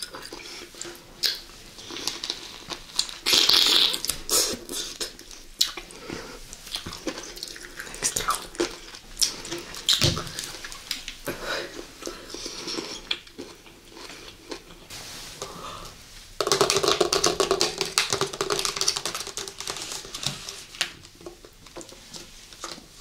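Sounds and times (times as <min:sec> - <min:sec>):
wet biting and chewing: 0:00.0 - 0:05.9.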